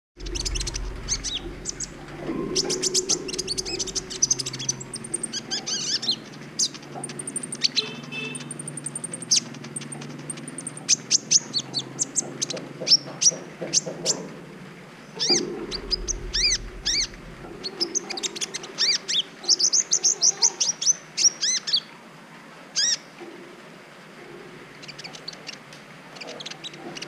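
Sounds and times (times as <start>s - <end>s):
bird chirping and trilling: 0.2s - 12.2s, 15.2s - 20.3s.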